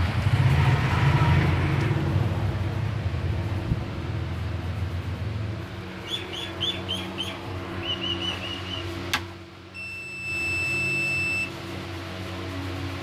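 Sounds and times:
low electrical hum: 0:02.3 - 0:13.0
high buzzer beep: 0:09.8 - 0:11.5.

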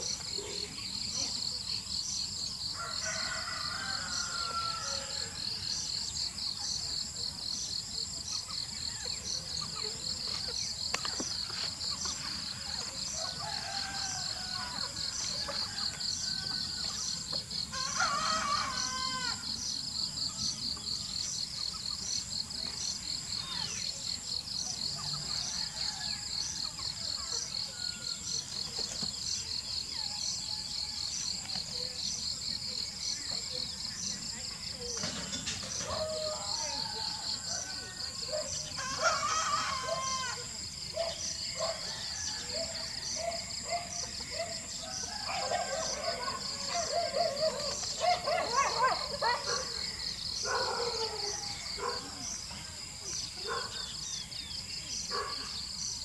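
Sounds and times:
insects trilling: 0:00.0 - 0:56.0
rooster crowing: 0:02.8 - 0:05.6, 0:13.2 - 0:19.5, 0:35.9 - 0:40.6, 0:41.8 - 0:43.5.

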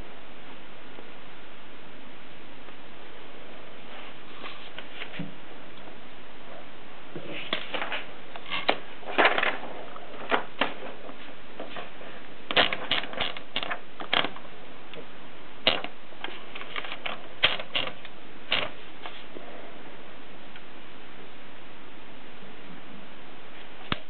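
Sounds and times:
typewriter clicks and ratcheting: 0:12.5 - 0:14.4, 0:15.7 - 0:18.7.

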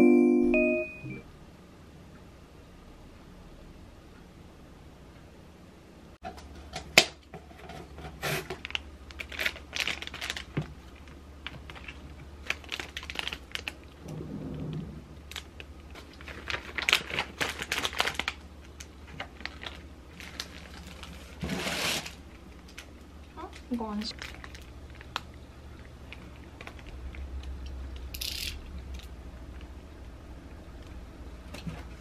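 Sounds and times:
plastic bag rustling: 0:08.3 - 0:25.3
plastic packaging crinkling: 0:08.5 - 0:14.0, 0:15.3 - 0:27.2.

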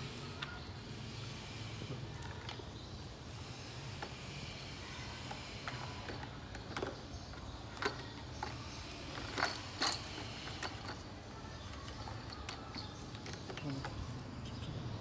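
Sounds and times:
plastic toys clacking together: 0:02.1 - 0:02.8, 0:05.1 - 0:14.4.

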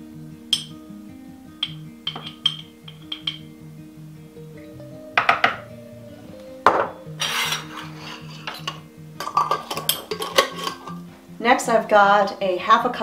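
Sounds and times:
soft background music: 0:00.0 - 0:13.0
glass jar being set down: 0:00.5 - 0:00.8, 0:01.6 - 0:03.5, 0:05.2 - 0:05.6, 0:06.6 - 0:11.0
metal spoon clinking on glass jar: 0:00.5 - 0:00.8, 0:01.6 - 0:03.5, 0:07.2 - 0:11.0.

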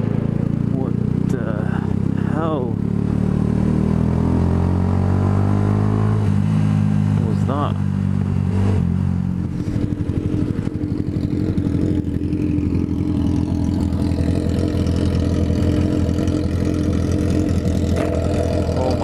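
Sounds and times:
motorcycle engines idling: 0:00.0 - 0:03.1, 0:09.4 - 0:19.0.

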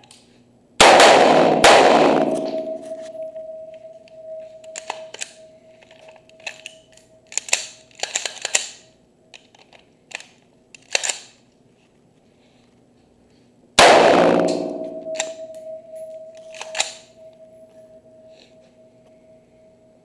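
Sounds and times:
loud rifle shot echoing: 0:00.8 - 0:03.3, 0:13.8 - 0:15.6
rifle handling clicks and knocks: 0:04.6 - 0:11.4.

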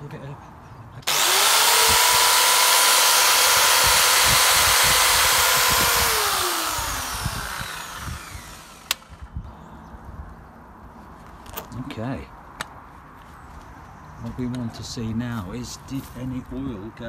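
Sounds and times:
electric pole saw whining: 0:01.1 - 0:09.2.

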